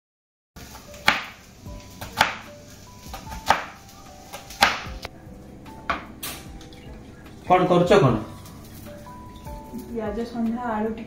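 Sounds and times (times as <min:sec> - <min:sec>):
soft background music: 0:00.6 - 0:11.0
knife chopping on wooden board: 0:01.0 - 0:01.4, 0:02.0 - 0:02.4, 0:03.1 - 0:05.1.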